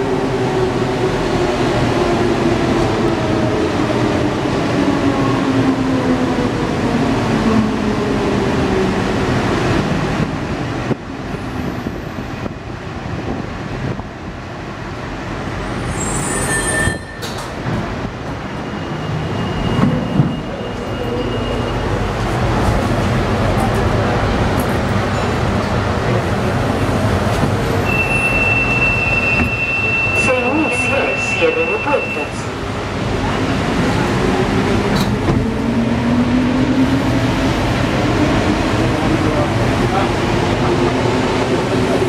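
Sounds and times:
train rolling noise: 0.0 - 42.0
high squeak: 16.0 - 17.4.

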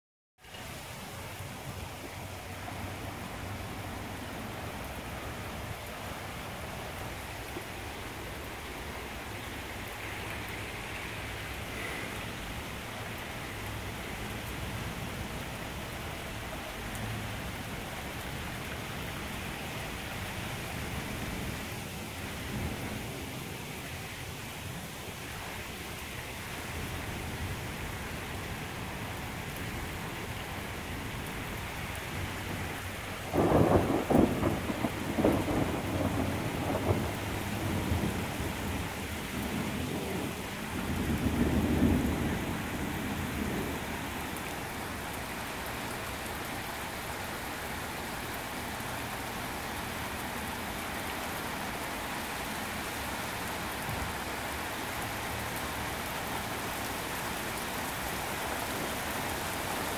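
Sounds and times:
steady rain falling: 0.4 - 59.9
thunderclap rumbling: 33.3 - 44.2.

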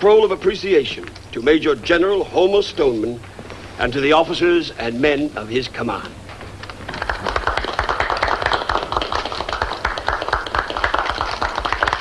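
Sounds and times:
people clapping: 6.3 - 12.0.

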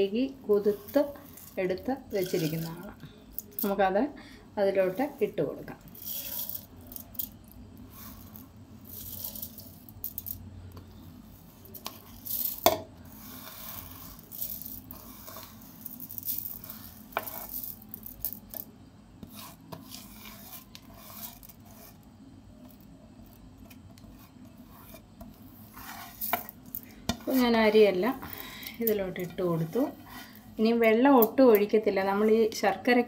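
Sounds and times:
wet rice scraping on steel plate: 0.6 - 2.9, 4.8 - 6.9, 7.8 - 9.8, 11.4 - 17.8, 19.2 - 28.6, 29.2 - 30.6.

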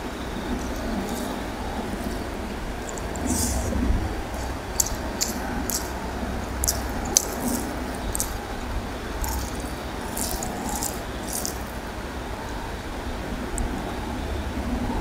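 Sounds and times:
steady low rumble: 0.0 - 15.0
wet squishing of food eaten by hand: 2.8 - 8.4, 9.2 - 11.8.

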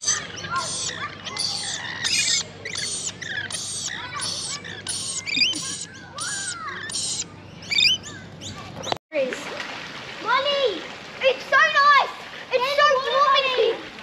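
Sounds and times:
birds chirping: 0.0 - 9.0
whistled gliding bird calls: 0.0 - 9.0.

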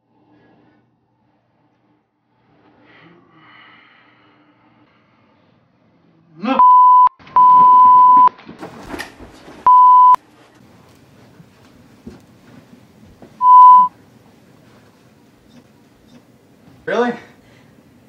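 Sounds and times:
censor bleeps: 6.6 - 8.3, 9.7 - 10.2, 13.4 - 13.9.

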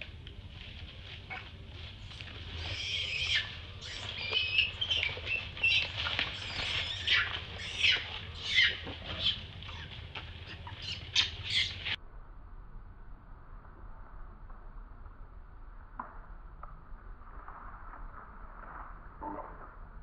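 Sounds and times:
infant monkey screaming: 2.5 - 12.0.

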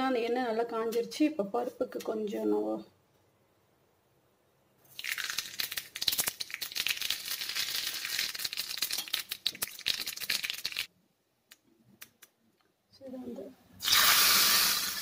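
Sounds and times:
spices sizzling in hot oil: 4.9 - 10.9, 13.8 - 15.0.

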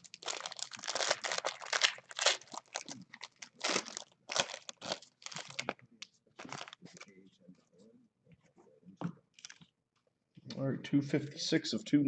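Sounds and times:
foil wrapper crinkling and tearing: 0.0 - 5.7.

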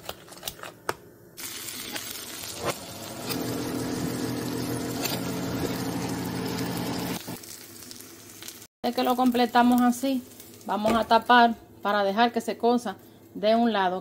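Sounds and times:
butter sizzling in frying pan: 1.4 - 10.9.

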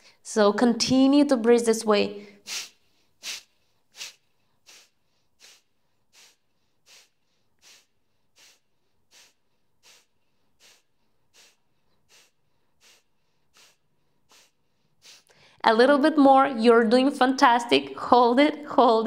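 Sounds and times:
quiet inhales: 2.2 - 15.6
woman exhaling forcefully through nose: 2.2 - 15.6.

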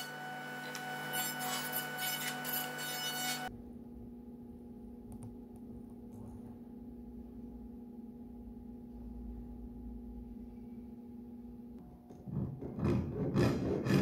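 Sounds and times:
jointer motor humming: 0.0 - 3.5.

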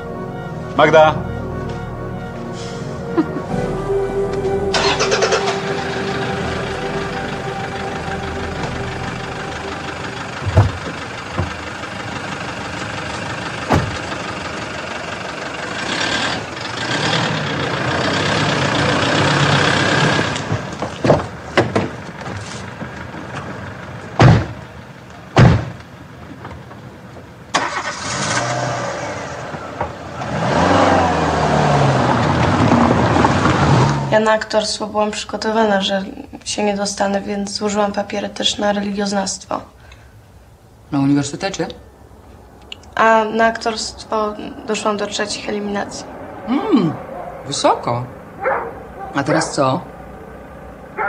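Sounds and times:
car engines driving off: 0.0 - 35.8, 39.7 - 51.0
car doors slamming: 10.4 - 11.8, 13.6 - 14.2, 24.2 - 24.6, 25.4 - 25.8.

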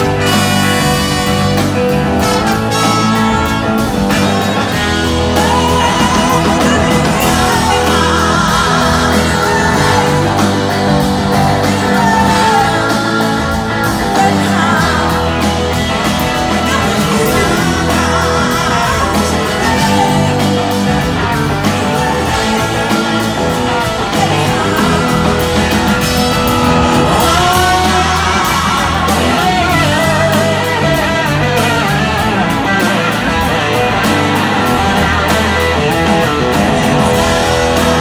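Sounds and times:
drum kit: 0.0 - 38.0
electric guitar: 0.0 - 38.0
horn section: 0.0 - 38.0
live blues-rock band: 0.0 - 38.0
woman singing: 2.9 - 32.2.

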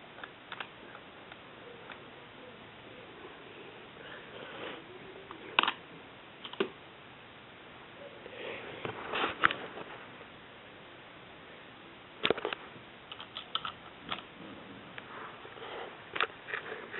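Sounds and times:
faint rustling: 8.2 - 10.3.

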